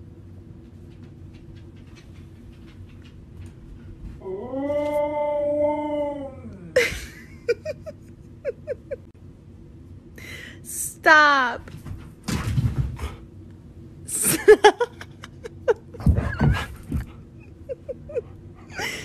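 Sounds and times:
husky howling: 4.2 - 6.8.

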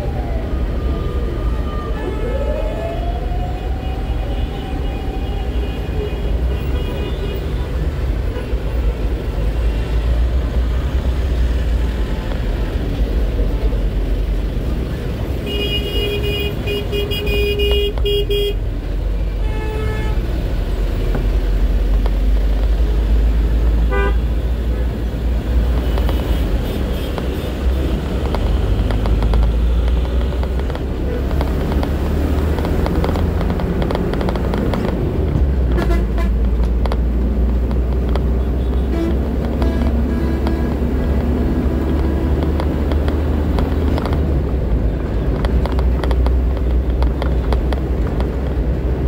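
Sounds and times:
vehicle engine and road rumble: 0.0 - 49.0
car horns honking: 23.8 - 24.3.

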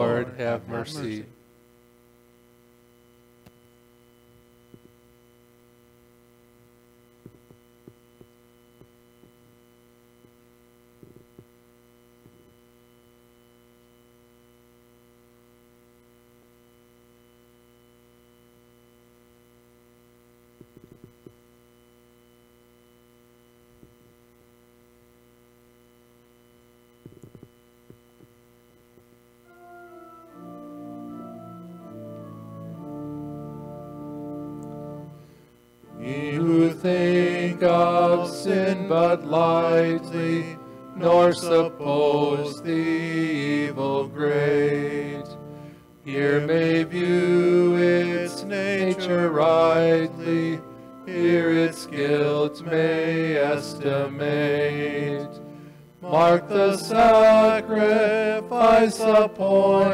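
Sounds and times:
church organ playing: 0.0 - 1.3, 29.5 - 59.9
electrical mains hum: 0.0 - 59.9
faint knocks and clicks: 27.0 - 28.4.

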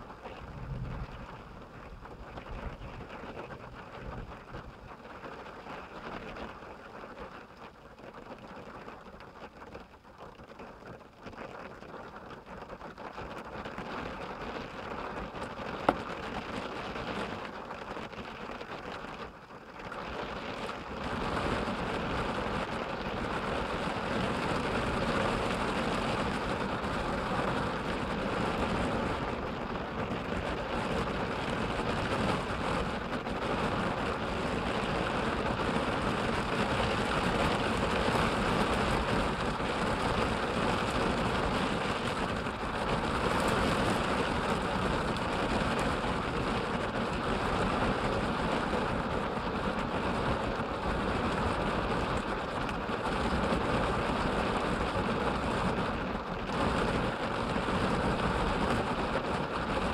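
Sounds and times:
rain on vehicle roof: 0.0 - 59.9.

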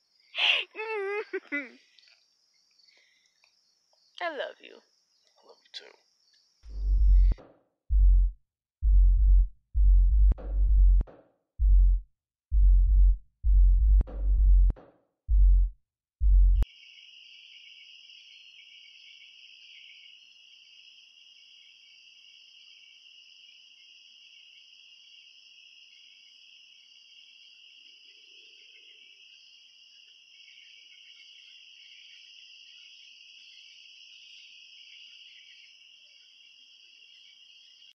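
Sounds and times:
crickets and night insects trilling: 0.0 - 6.7, 16.6 - 37.9.

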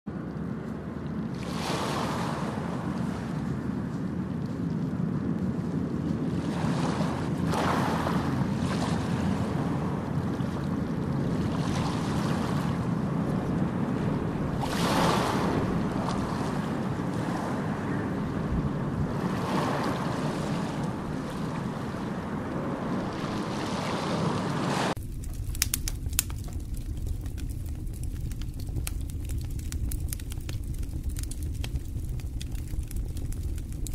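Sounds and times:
steady rushing noise: 24.2 - 33.9.

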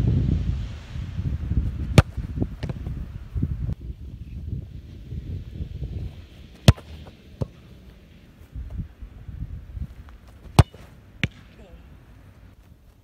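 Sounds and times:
football kicked hard: 1.6 - 3.1, 6.5 - 7.6, 10.2 - 11.5.

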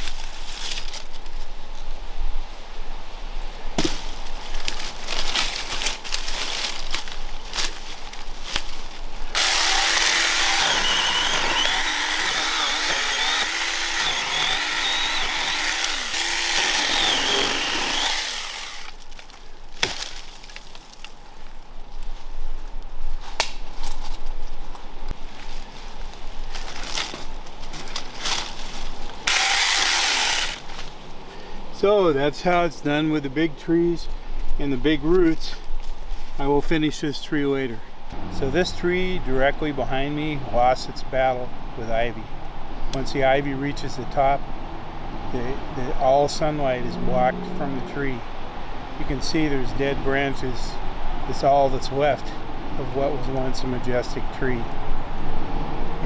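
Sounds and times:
miniature chainsaw cutting roots: 9.3 - 21.1, 29.2 - 30.9
snaps and knocks: 23.4 - 24.0.

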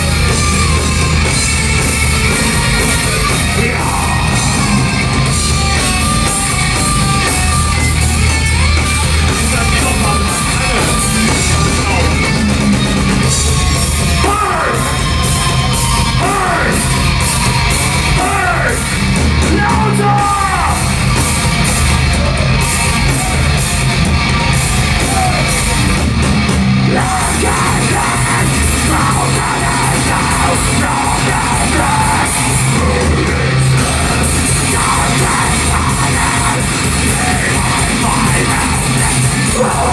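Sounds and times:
metal band playing: 0.0 - 39.9
shouted vocals: 3.1 - 5.2, 14.2 - 20.9, 24.7 - 25.8, 26.8 - 39.9.

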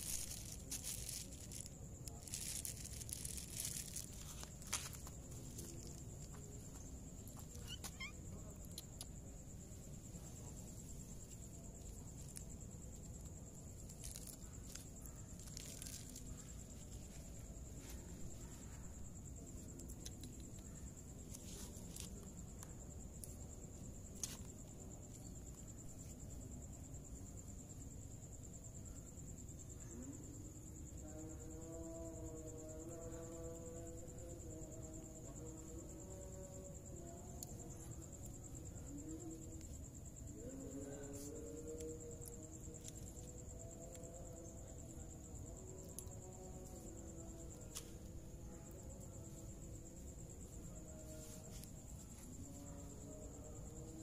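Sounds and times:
high-pitched insect trill: 0.0 - 54.0
cat chirping: 7.6 - 8.2.

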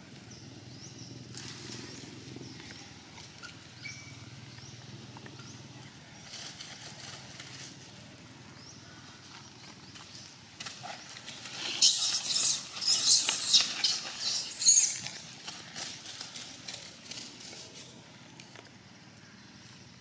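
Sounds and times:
dry leaves crackling underfoot: 6.0 - 19.6.

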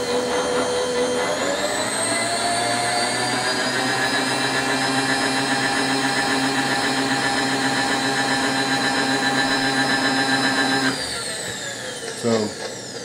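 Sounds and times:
power feed motor whining: 0.0 - 13.0.

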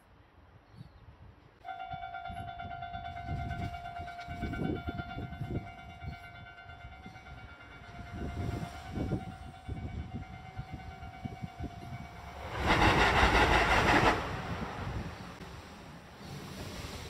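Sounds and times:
wind buffeting microphone: 0.7 - 17.0
level crossing warning bell: 1.7 - 12.4.

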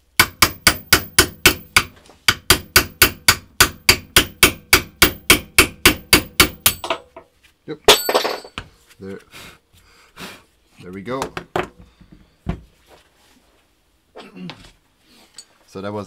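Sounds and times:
hammer striking metal punch: 0.0 - 7.0.

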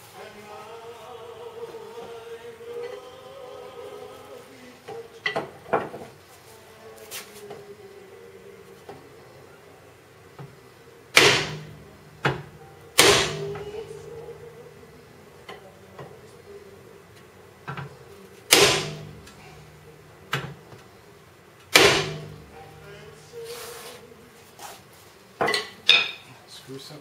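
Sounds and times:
hammer striking metal hub: 11.2 - 13.7.

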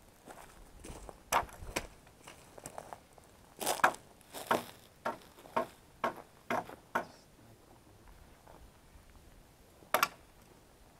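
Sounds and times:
footsteps crunching on dry leaves: 0.2 - 5.8.

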